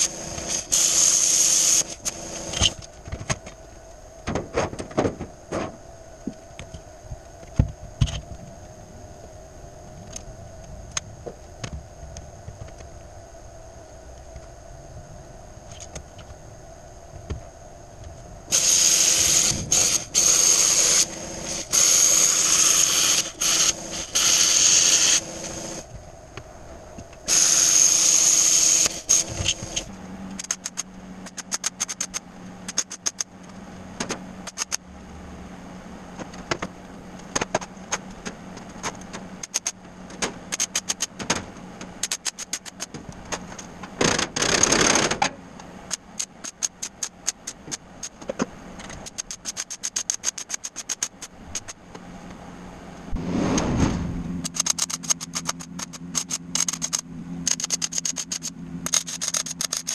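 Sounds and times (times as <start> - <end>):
power tool cutting steel sheet: 0.0 - 2.8, 18.5 - 25.8, 27.3 - 29.9
steady low hum: 0.0 - 59.9
sharp crackles and clicks: 18.0 - 34.8, 36.2 - 52.0, 53.2 - 59.9.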